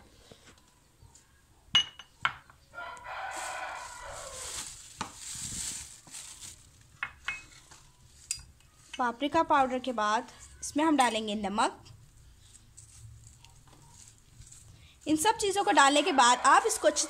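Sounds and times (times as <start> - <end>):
rooster crowing: 2.7 - 4.7, 15.6 - 17.0
plastic bag rustling: 3.0 - 7.0, 12.5 - 17.0.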